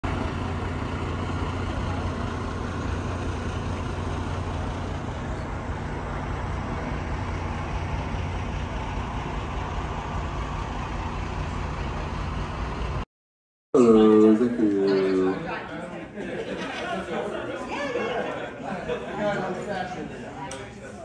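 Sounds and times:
vehicle engine idling: 0:00.0 - 0:13.0
outdoor traffic noise: 0:00.0 - 0:13.1, 0:13.8 - 0:21.0.

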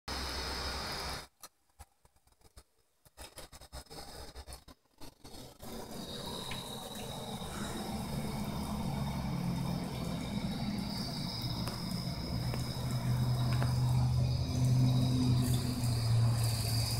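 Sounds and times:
faucet running into sink: 0:05.8 - 0:16.9.

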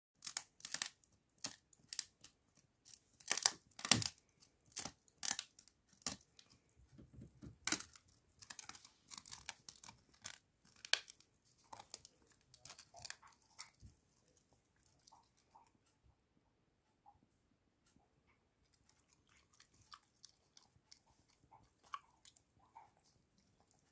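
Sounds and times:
dog chewing with crunches: 0:03.0 - 0:15.8, 0:18.6 - 0:23.9.

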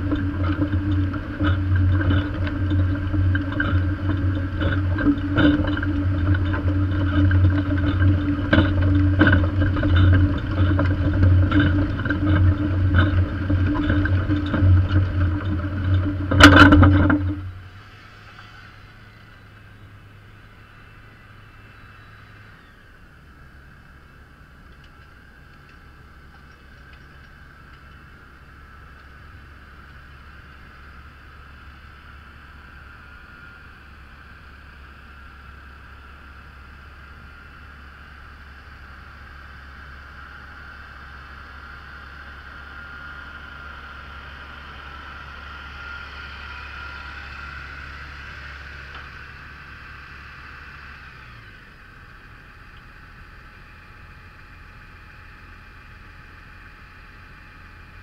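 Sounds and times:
tractor engine droning: 0:00.0 - 0:58.0.

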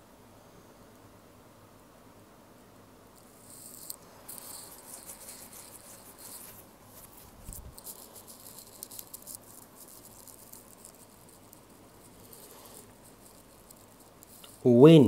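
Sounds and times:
small clicks and rustling: 0:03.1 - 0:14.7.

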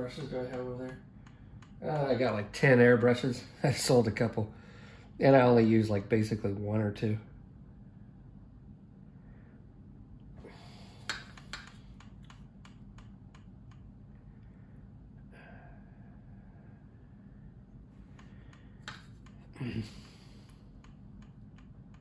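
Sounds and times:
steady low hum: 0:00.0 - 0:22.0
person breathing: 0:04.5 - 0:05.2, 0:10.4 - 0:11.9, 0:14.2 - 0:20.8
paintbrush clicks and taps: 0:11.0 - 0:13.9, 0:18.1 - 0:19.5.

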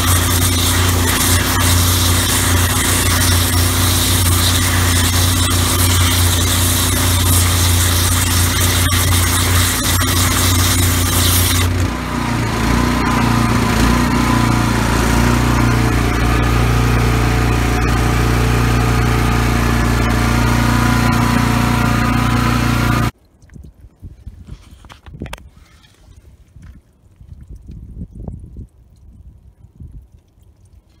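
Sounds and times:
high-pressure water spray hiss: 0:00.0 - 0:11.9
pressure washer engine running: 0:00.0 - 0:23.1.

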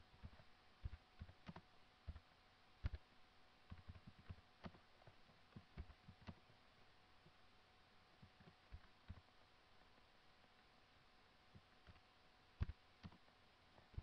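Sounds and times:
soft keyboard typing: 0:00.2 - 0:03.0, 0:03.7 - 0:06.6, 0:08.2 - 0:09.3, 0:11.5 - 0:12.0, 0:12.6 - 0:14.0.

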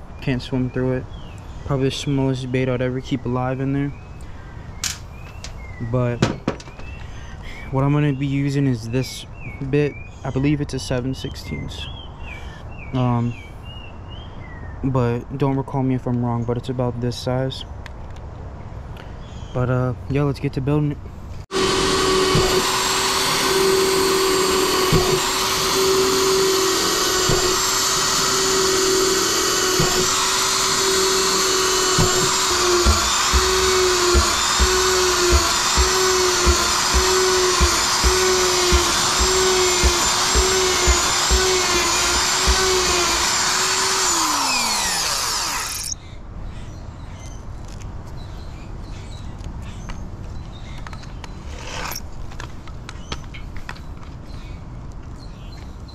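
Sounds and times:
electric drill whining: 0:21.5 - 0:46.0
low knocks: 0:29.7 - 0:43.5.

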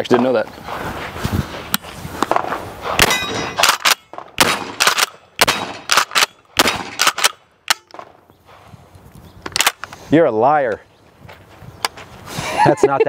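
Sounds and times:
shotgun shots: 0:02.3 - 0:08.1
metallic clangs: 0:03.0 - 0:04.3.

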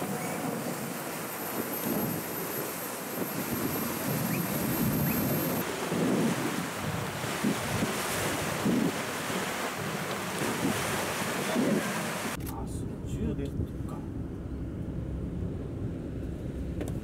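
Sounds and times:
sea noise: 0:00.0 - 0:12.4
wind buffeting microphone: 0:03.1 - 0:17.0.

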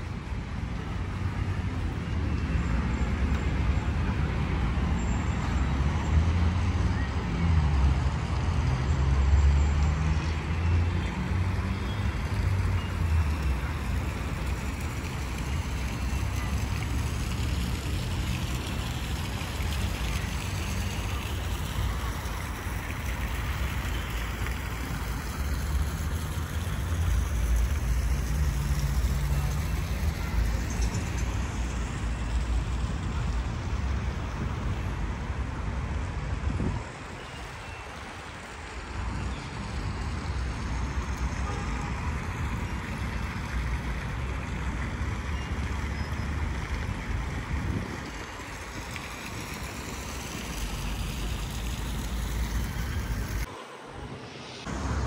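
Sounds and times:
road traffic passing: 0:00.0 - 0:55.0.

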